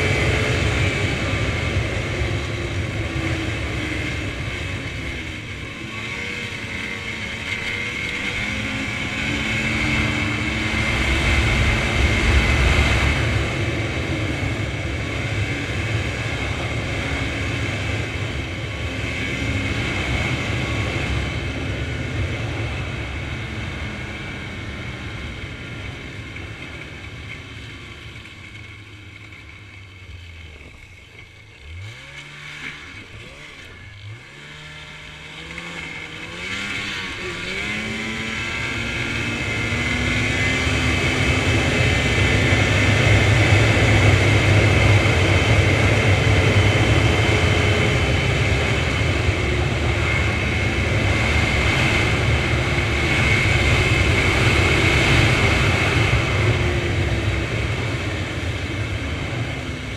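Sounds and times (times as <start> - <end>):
snowmobile engine running: 0.0 - 59.9
wind noise: 7.0 - 27.1.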